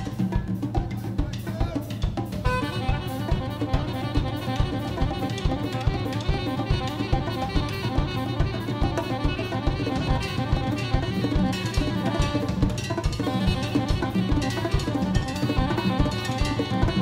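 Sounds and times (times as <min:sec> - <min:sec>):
drums and percussion hits: 0:00.0 - 0:17.0
saxophone line: 0:02.2 - 0:17.0.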